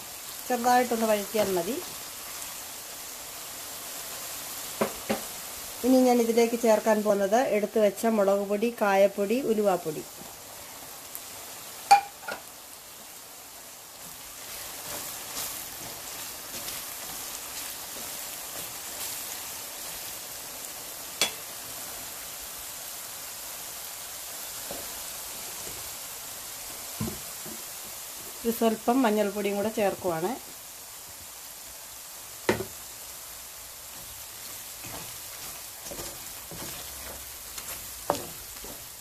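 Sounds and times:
oil sizzling in a pan: 0.0 - 39.0.

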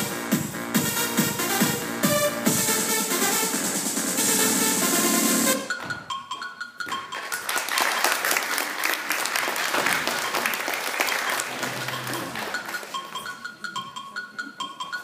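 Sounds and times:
music: 0.0 - 9.0, 9.7 - 15.0
audience clapping: 7.1 - 13.2.

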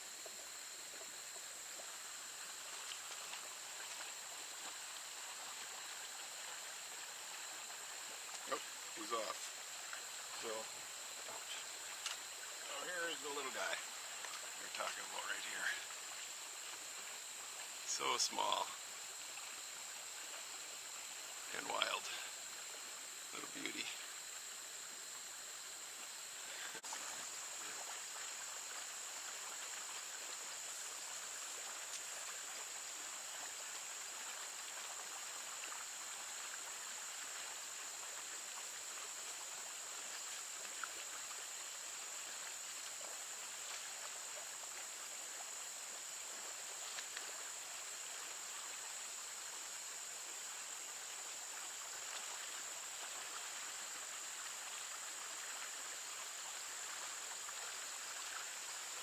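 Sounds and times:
stream water running: 0.0 - 59.0
faint ticks: 2.6 - 6.0, 9.3 - 10.6, 11.3 - 12.3, 13.7 - 16.9, 31.5 - 32.8, 40.0 - 41.6, 46.8 - 47.9.

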